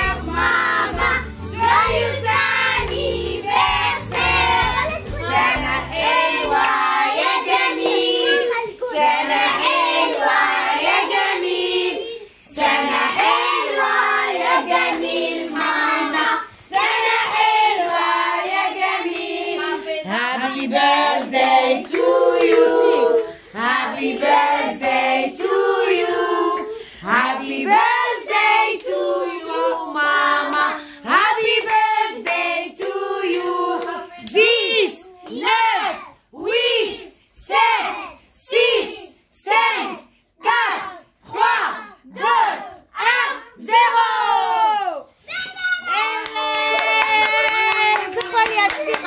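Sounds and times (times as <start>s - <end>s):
hands clapping along: 0.0s - 11.5s, 14.4s - 19.7s, 20.3s - 24.4s, 25.2s - 35.5s, 45.4s - 49.0s
group singing together: 0.0s - 45.0s.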